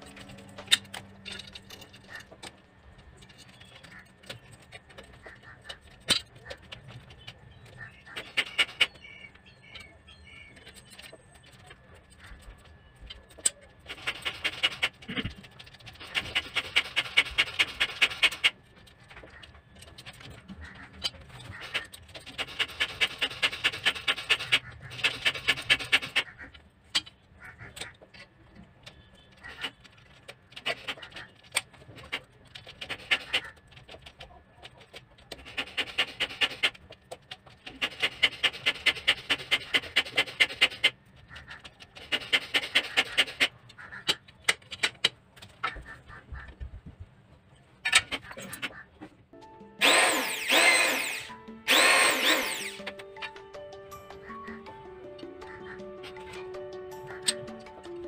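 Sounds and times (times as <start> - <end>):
electric drill whine: 49.8 - 52.9
screwdriver grinding clicks: 49.8 - 53.0.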